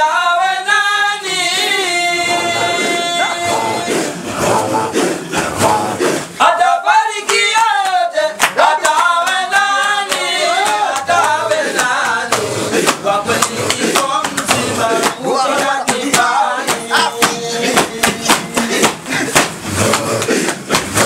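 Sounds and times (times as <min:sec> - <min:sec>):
men chanting: 0:00.0 - 0:21.0
amplified lead voice: 0:01.4 - 0:07.2, 0:12.5 - 0:18.6.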